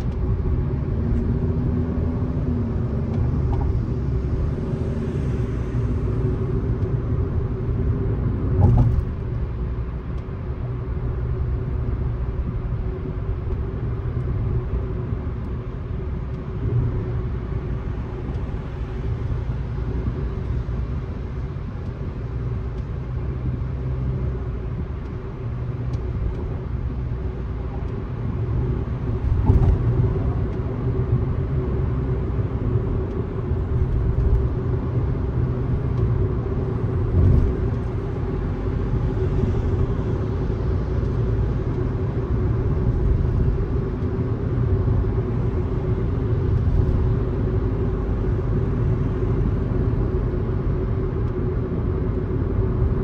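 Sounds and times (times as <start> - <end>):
car tyres and engine rumble: 0.0 - 53.0
car bump: 8.6 - 9.2.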